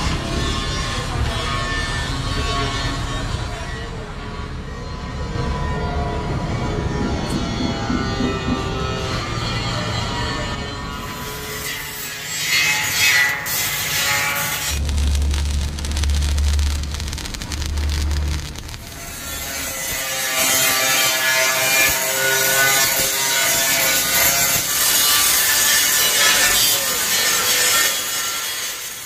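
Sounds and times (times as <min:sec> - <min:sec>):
angle grinder grinding steel: 0:10.9 - 0:29.0.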